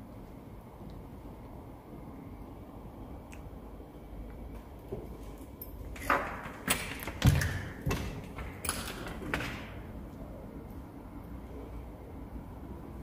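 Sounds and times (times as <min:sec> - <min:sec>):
knocks and thuds: 0:06.1 - 0:09.8.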